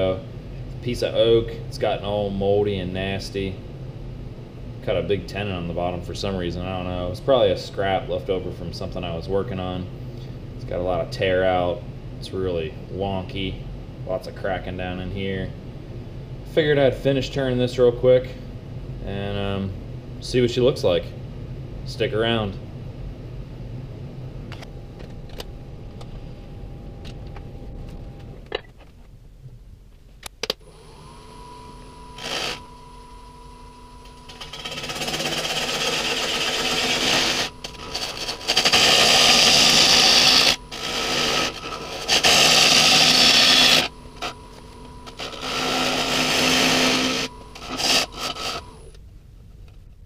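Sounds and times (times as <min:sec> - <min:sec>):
lathe motor whining: 0:30.6 - 0:49.0
turning tool cutting wood: 0:30.7 - 0:33.4, 0:34.0 - 0:48.8.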